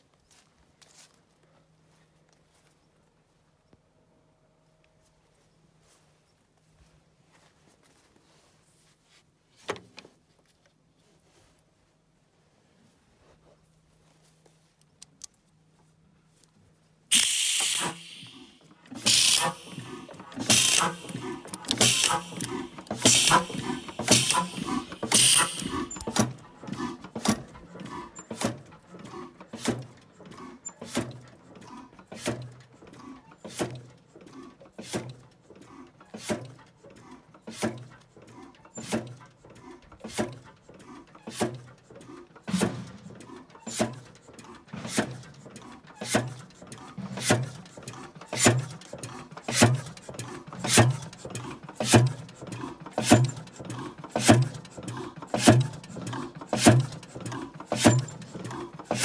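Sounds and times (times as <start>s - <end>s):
valve gear ticking: 17.1s - 26.4s, 47.9s - 59.0s
stationary engine exhaust beats: 17.1s - 59.0s.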